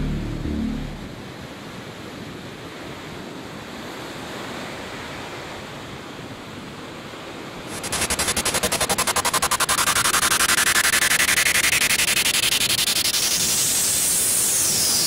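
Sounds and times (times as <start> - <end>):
loud rapidly pulsing sound: 0.0 - 1.4, 7.7 - 15.0
wind: 1.0 - 15.0
ocean surf: 7.5 - 15.0.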